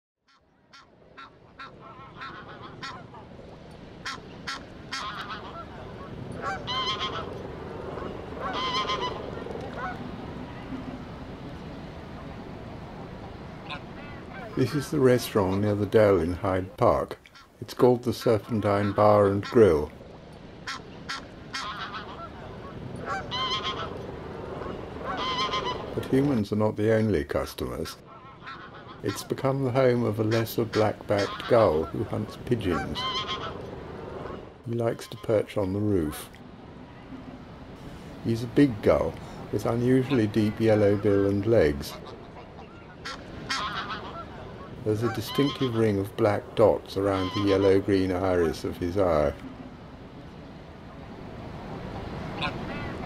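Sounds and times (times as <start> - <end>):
geese honking: 0.3 - 10.8, 13.2 - 19.9, 20.6 - 26.4, 27.7 - 36.3, 38.2 - 49.4, 52.0 - 53.0
low background noise: 0.4 - 53.0
steady background noise: 0.5 - 53.0.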